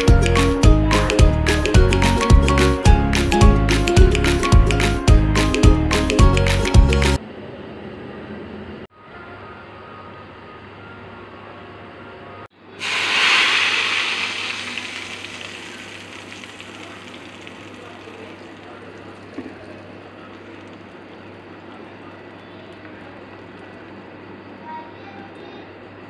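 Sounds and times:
seeds sizzling in hot oil: 12.8s - 21.3s
hot oil sizzling on yogurt: 12.8s - 24.3s.

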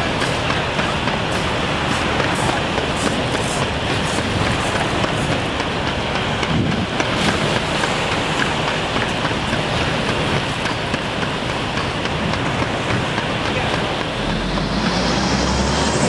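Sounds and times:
hovercraft fans rushing air: 0.0s - 16.0s.

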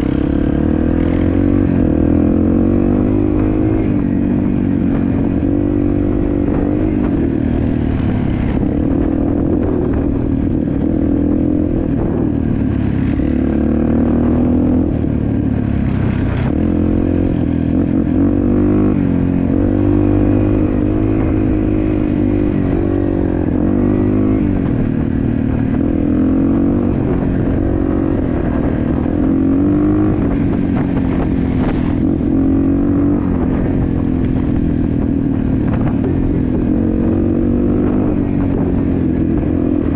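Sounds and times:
off-road vehicle engine revving: 0.0s - 10.1s.

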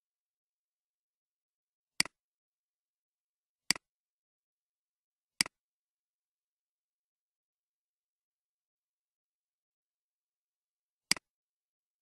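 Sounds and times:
computer mouse clicks: 2.0s - 2.2s, 11.1s - 11.3s.

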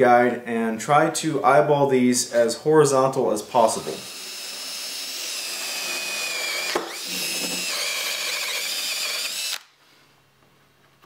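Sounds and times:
drill motor whine: 3.6s - 9.7s.

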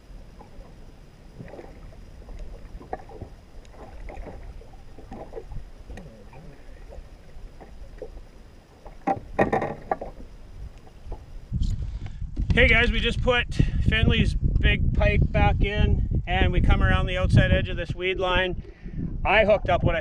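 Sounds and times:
water lapping against boat hull: 0.0s - 12.2s
small knocks: 8.8s - 11.3s.

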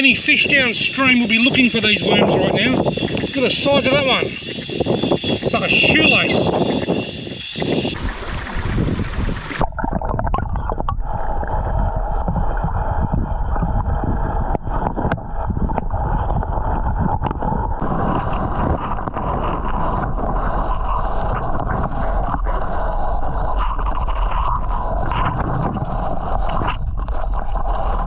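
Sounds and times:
muffled underwater rush: 0.0s - 28.0s
flowing water rushing: 7.9s - 16.5s.

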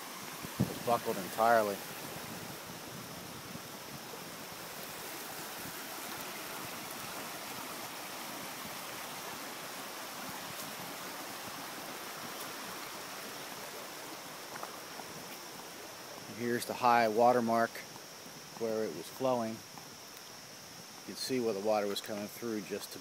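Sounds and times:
creek rushing: 0.0s - 23.0s.

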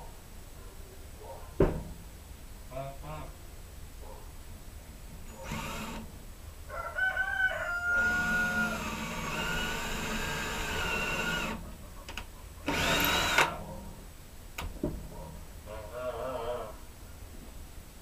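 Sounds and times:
cordless drill boring into wood: 5.3s - 6.1s, 8.0s - 11.6s, 12.7s - 13.6s
rooster crowing: 6.7s - 8.9s.

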